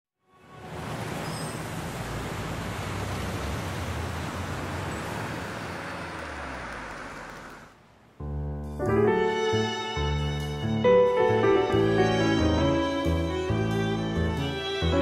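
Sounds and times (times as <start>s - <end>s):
city traffic noise: 0.2s - 8.2s.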